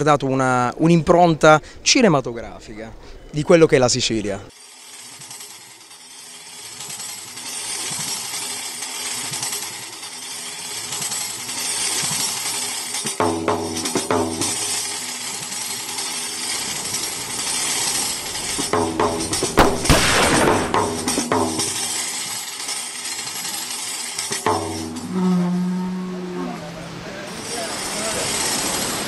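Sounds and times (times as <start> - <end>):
high shaking percussion: 4.5 - 26.5, 27.3 - 29.0
sharp percussion strikes: 12.8 - 15.0, 18.5 - 22.2, 24.3 - 26.0
held low notes: 24.4 - 27.2.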